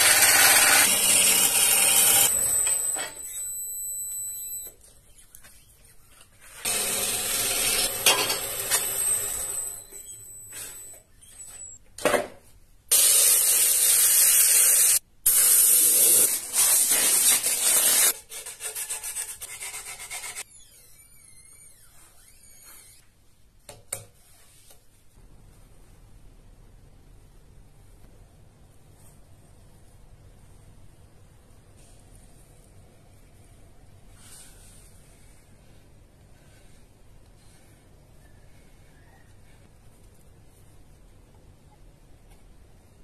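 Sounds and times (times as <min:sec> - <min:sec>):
gouge cutting spinning wood: 0:00.0 - 0:02.4, 0:06.7 - 0:09.5.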